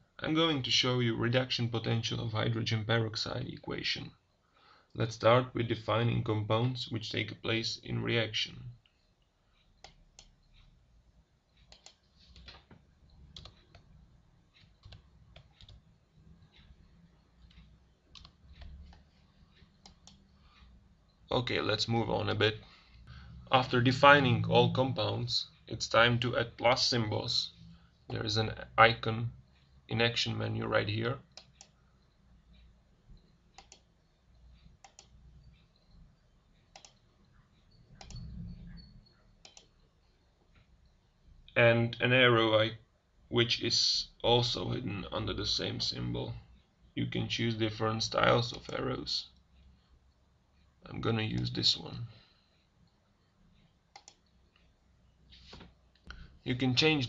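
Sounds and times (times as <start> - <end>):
faint keyboard typing: 5.7 - 41.6, 43.7 - 57.0
computer mouse clicking: 9.6 - 10.8, 11.5 - 21.1, 31.3 - 36.0, 36.6 - 39.9, 48.5 - 48.8, 53.6 - 54.8
faint low rumble: 37.4 - 39.2.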